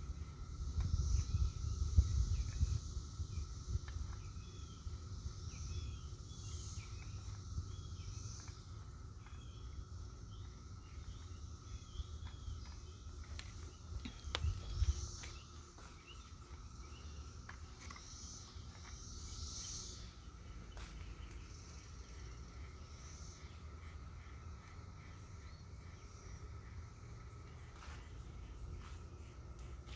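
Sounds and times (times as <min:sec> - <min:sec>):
insects calling: 0:00.0 - 0:29.9
small birds chirping: 0:00.0 - 0:29.9
steady low rumble: 0:00.0 - 0:29.9.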